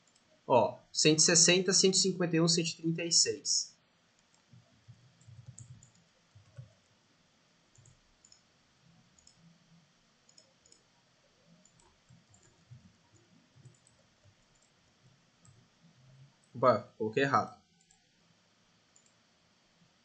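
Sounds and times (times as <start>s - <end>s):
computer mouse clicks: 0.0s - 0.3s, 4.2s - 6.8s, 7.7s - 8.5s, 9.1s - 9.5s, 10.3s - 14.8s, 15.4s - 15.6s, 17.8s - 18.1s, 18.9s - 19.2s.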